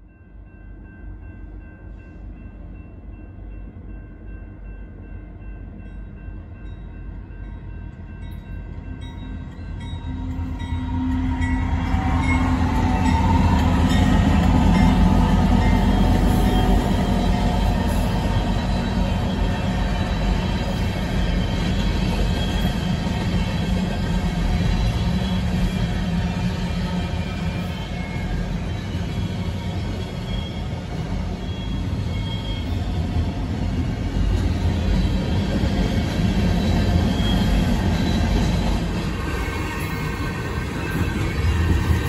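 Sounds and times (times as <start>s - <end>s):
crossing warning bells ringing: 0.0s - 26.2s
diesel locomotive engines rumbling: 0.0s - 42.0s.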